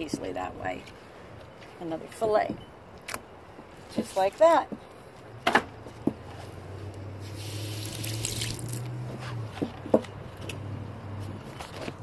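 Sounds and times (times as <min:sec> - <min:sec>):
water running: 0:07.3 - 0:08.8.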